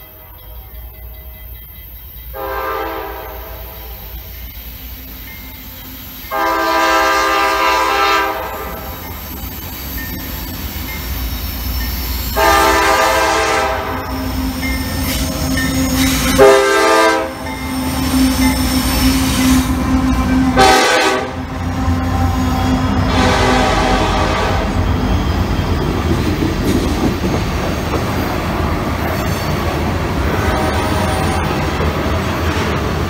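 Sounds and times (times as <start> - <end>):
diesel locomotive rumble: 0.0 - 33.0
train air horn blasts: 2.3 - 4.2, 6.3 - 9.0, 12.4 - 14.4, 15.9 - 25.0.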